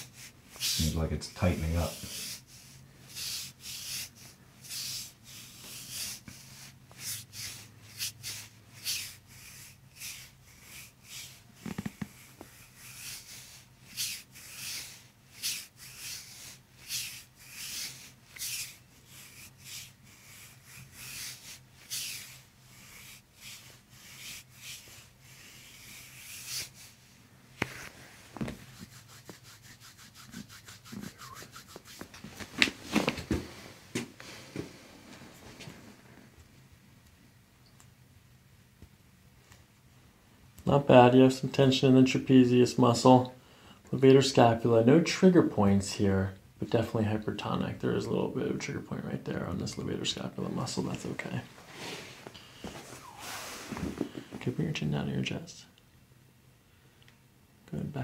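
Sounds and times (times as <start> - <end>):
fingertips rubbing on skin: 0.0 - 27.0, 27.6 - 32.3.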